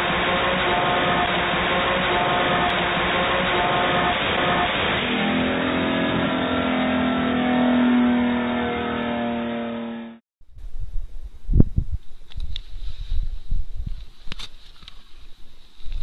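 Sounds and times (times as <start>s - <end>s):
race car engine at high revs: 0.0s - 10.2s.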